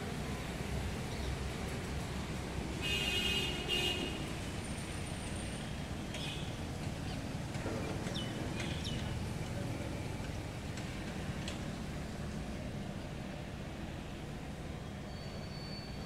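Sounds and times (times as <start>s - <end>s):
low rumble of traffic: 0.0s - 16.0s.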